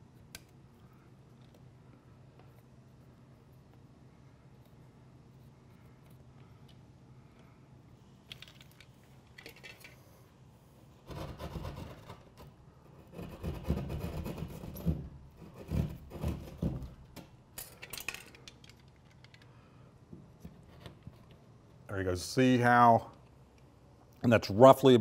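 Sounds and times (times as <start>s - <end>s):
saw rasping through drywall: 11.1s - 16.9s.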